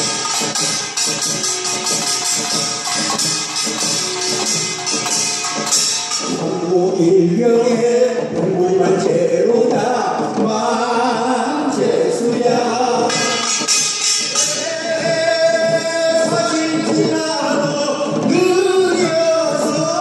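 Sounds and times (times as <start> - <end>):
hand drums and barrel drums: 0.0 - 20.0
man singing chant-like melody: 6.4 - 13.4, 14.4 - 20.0.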